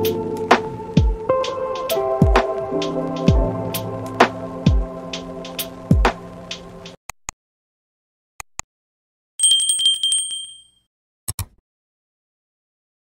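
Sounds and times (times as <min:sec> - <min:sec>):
trilling bell ring: 0:09.4 - 0:10.8
mouse clicks: 0:11.3 - 0:11.6.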